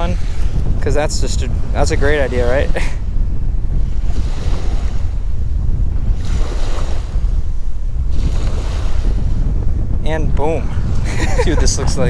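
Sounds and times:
small waves washing on shore: 0.0 - 9.6
wind buffeting microphone: 0.0 - 12.0.

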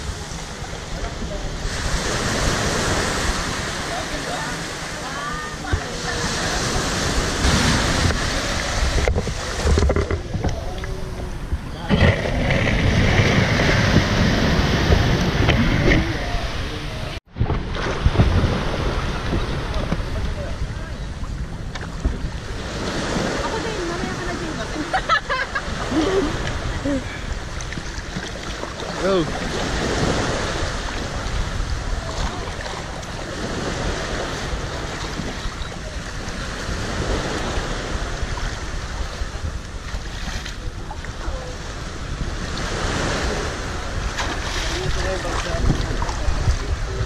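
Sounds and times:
wind rumble on microphone: 0.0 - 47.0
seawater sloshing from wading: 17.7 - 47.0.

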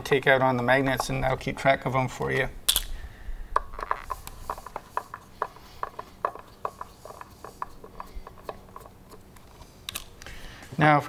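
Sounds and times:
screwdriver clicking: 2.7 - 2.9, 9.9 - 10.2.

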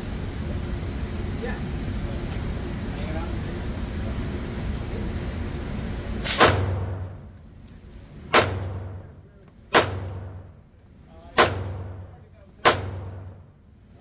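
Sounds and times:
pistol shots echoing: 11.4 - 13.3.

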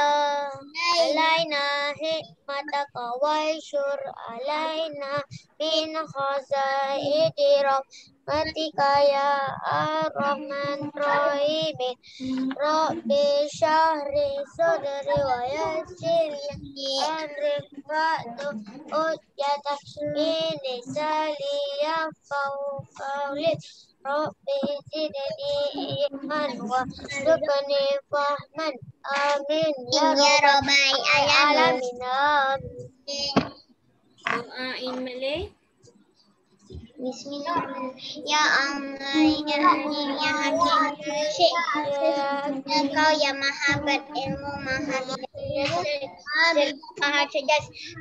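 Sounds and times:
child singing a prayer chant: 0.0 - 33.5, 37.0 - 48.0.

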